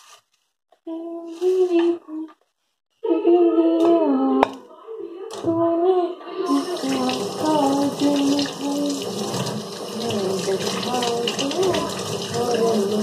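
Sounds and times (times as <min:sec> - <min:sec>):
person humming: 0:00.8 - 0:02.4, 0:05.6 - 0:09.2, 0:10.0 - 0:13.0
tap running water: 0:06.5 - 0:13.0.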